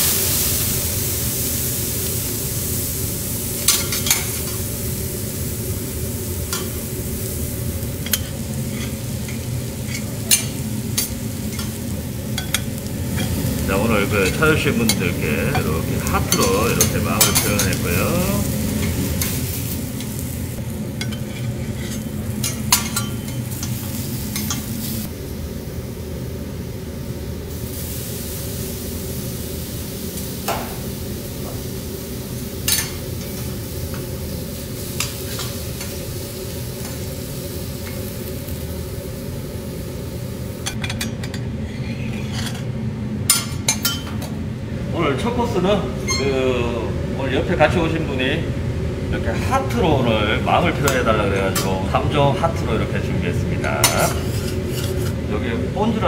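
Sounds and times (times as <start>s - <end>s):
shrimp sizzling on griddle: 0.0s - 41.0s, 53.6s - 55.2s.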